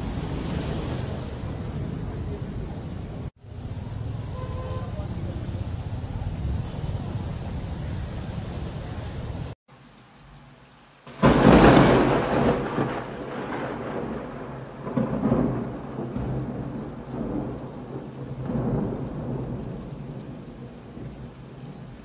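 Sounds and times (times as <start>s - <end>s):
heavy rain: 0.0s - 22.0s
thunderclap and rumble: 11.1s - 22.0s.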